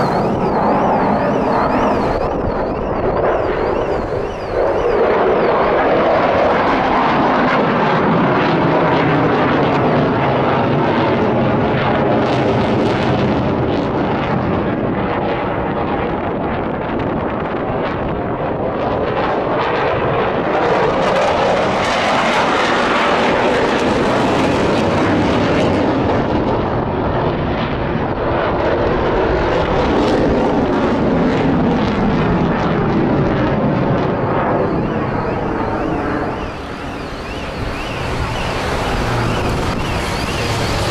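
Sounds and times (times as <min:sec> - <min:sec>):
jet engine roar: 0:00.0 - 0:40.9.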